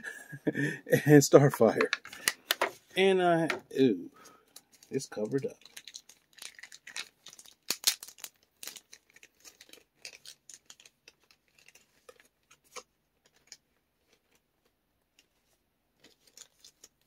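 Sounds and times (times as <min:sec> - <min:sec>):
packaging crinkling: 0:04.5 - 0:14.4, 0:16.0 - 0:17.0.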